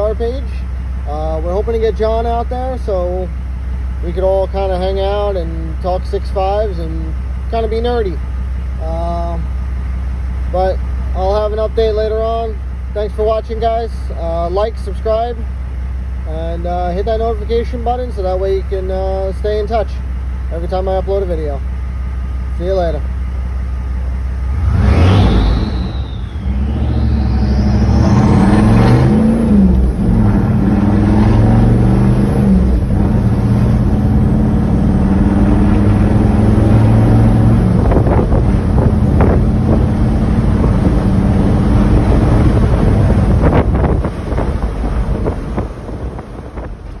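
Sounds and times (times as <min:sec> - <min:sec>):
diesel engine accelerating: 0:00.0 - 0:47.0
turbo whistle: 0:25.0 - 0:28.6.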